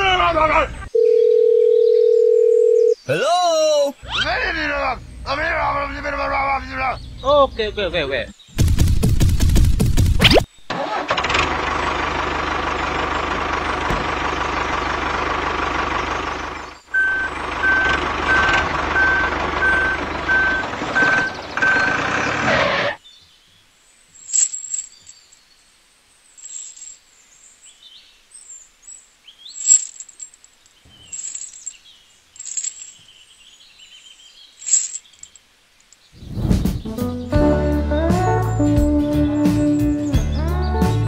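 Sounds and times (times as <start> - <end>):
faint bird chirps: 2.8 - 5.3
tractor engine running: 8.6 - 23.0
reversing alarm beeping: 16.9 - 22.2.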